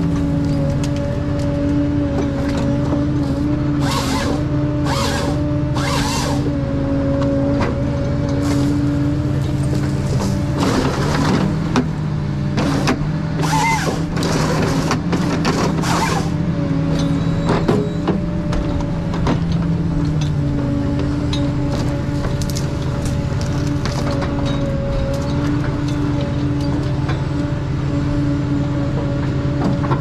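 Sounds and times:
diesel engine running under load: 0.0s - 30.0s
brief squeal: 13.4s - 14.0s, 17.0s - 18.1s.

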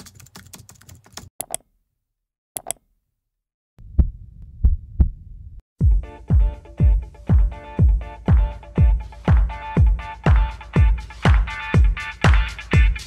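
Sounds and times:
keyboard typing clicks: 0.0s - 1.7s, 2.6s - 2.8s
deep bass drum thumps: 3.8s - 8.0s.

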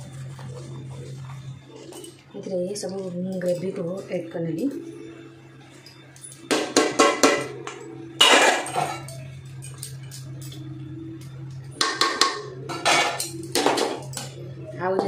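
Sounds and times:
background music: 0.0s - 15.0s
metal spoon scraping a pot: 8.2s - 9.2s.

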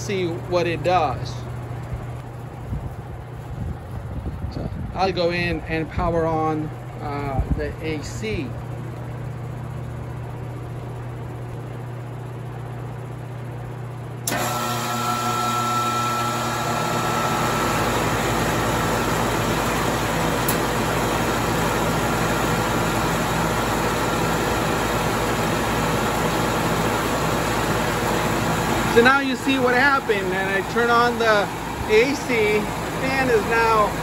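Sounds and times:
air conditioner unit running: 0.0s - 34.0s
box fan humming: 0.0s - 34.0s
brief motor whine: 14.2s - 18.2s.

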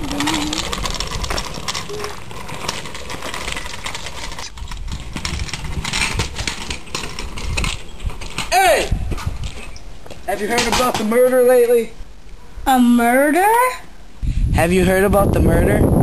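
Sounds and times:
wind rumbling on microphone: 0.0s - 10.1s, 14.1s - 16.0s.

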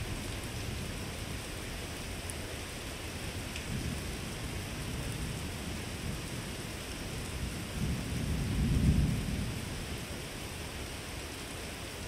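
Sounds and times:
rain hiss: 0.0s - 12.0s
thunder rumbling: 3.7s - 10.1s.

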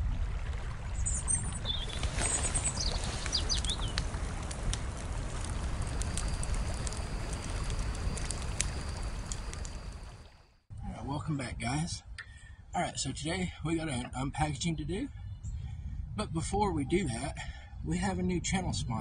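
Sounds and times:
birds chirping: 1.1s - 4.0s
steady low rumble: 3.6s - 19.0s.

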